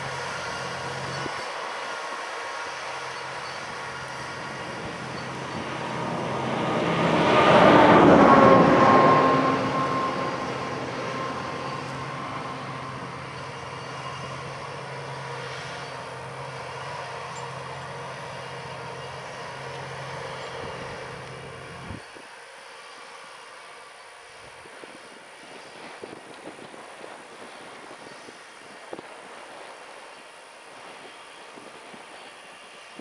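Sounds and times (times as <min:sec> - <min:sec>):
tractor diesel engine under load: 0:00.0 - 0:22.0
loud passing noise: 0:02.2 - 0:22.0.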